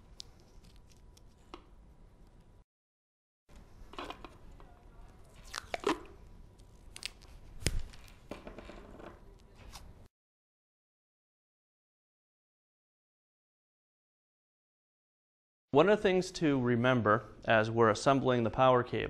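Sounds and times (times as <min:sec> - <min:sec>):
faint rustling of wires: 0:00.0 - 0:02.6.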